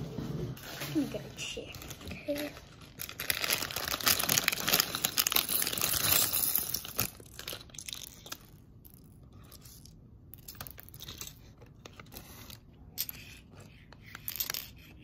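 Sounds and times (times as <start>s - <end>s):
plastic bag crinkling: 0.6s - 9.9s.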